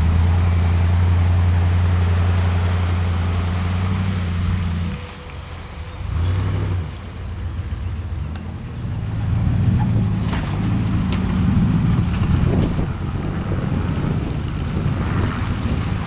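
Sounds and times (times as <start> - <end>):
off-road vehicle engine rumble: 0.0 - 16.0.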